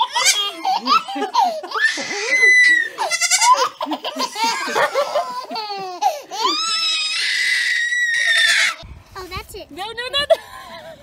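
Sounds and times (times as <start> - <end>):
goat kid bleating: 0.0 - 0.9, 1.8 - 4.8
baby laughing: 0.0 - 6.8.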